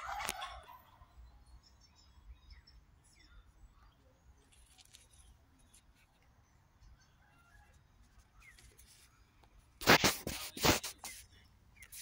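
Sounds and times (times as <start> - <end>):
faint bird chirps: 0.0 - 9.8, 10.6 - 12.0
loud rustling and crackling: 9.8 - 11.2.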